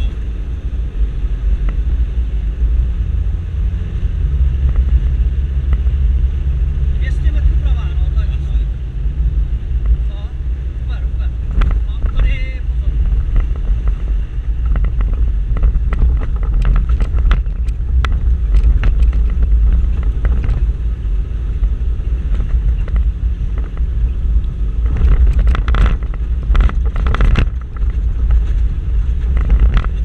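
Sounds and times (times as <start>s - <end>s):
engine and road drone: 0.0s - 30.0s
knocks and rattles: 24.8s - 30.0s.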